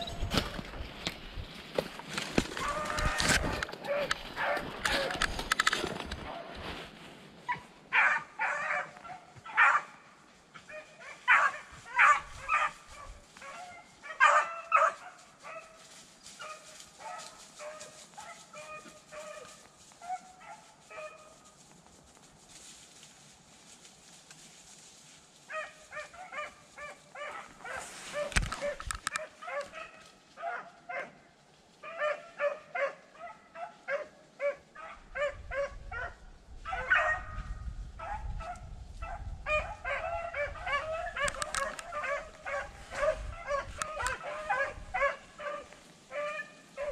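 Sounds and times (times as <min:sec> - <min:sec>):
beagles baying: 0:16.4 - 0:21.4, 0:39.5 - 0:46.9.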